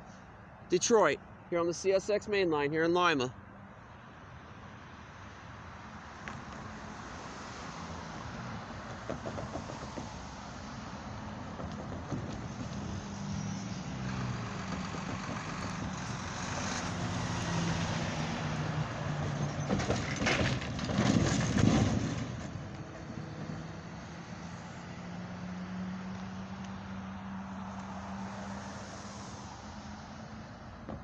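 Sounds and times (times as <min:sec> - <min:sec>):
clatter over railroad tracks: 0:08.9 - 0:10.2, 0:11.4 - 0:13.0, 0:14.4 - 0:16.8, 0:19.2 - 0:23.6.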